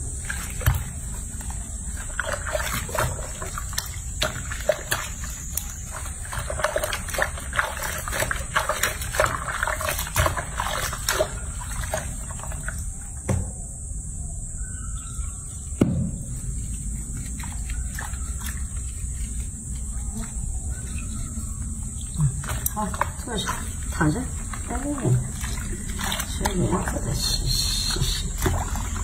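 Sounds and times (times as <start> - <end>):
water sloshing in sink: 0.2 - 13.6, 16.6 - 29.0
sharp knocks: 15.8 - 16.5.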